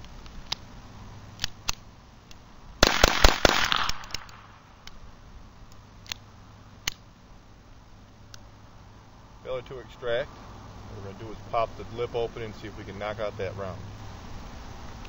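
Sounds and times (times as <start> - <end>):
sharp clicks: 1.4 - 5.0, 6.8 - 7.1
pistol shots: 2.8 - 4.6.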